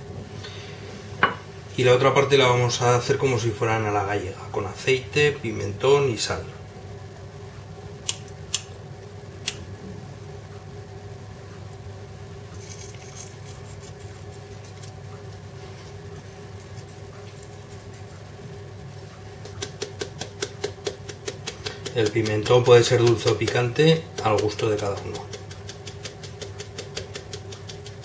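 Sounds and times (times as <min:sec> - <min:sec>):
steady low hum: 0:00.0 - 0:28.0
spice jar shaken ticking: 0:12.6 - 0:15.1, 0:19.4 - 0:28.0.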